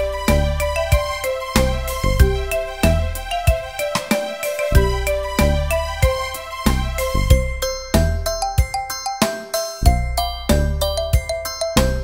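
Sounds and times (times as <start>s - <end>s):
steady low beat: 0.0s - 8.6s
light melody with ringing notes: 0.0s - 12.0s.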